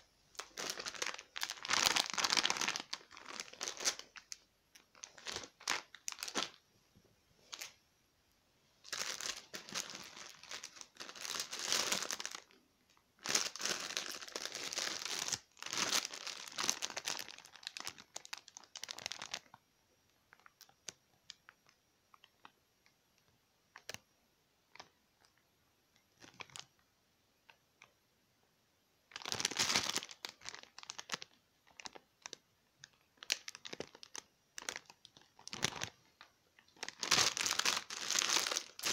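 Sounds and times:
plastic film crinkling: 0.3 - 6.6, 7.4 - 7.8, 8.8 - 19.6, 29.1 - 38.9.

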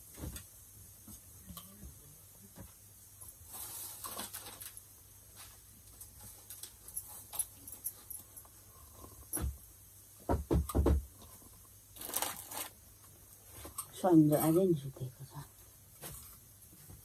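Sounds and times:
kitchen knocks and clicks: 10.2 - 11.1.

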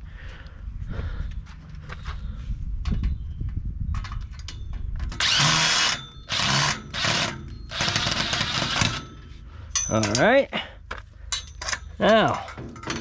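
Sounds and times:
power drill driving screw: 5.1 - 9.0
handling clicks and knocks: 8.8 - 13.0.

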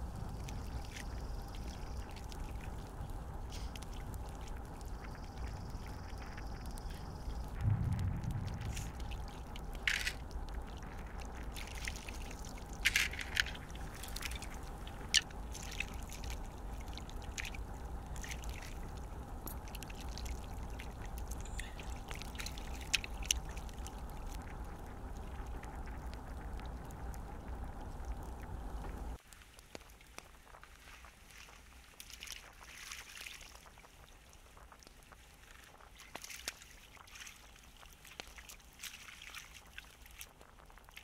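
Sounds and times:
stream running over stones: 8.4 - 41.0.

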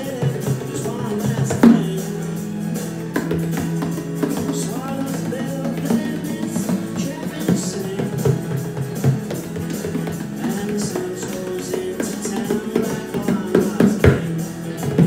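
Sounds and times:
frame drum beaten: 0.0 - 15.0
pop song with guitar and singing: 0.0 - 15.0.

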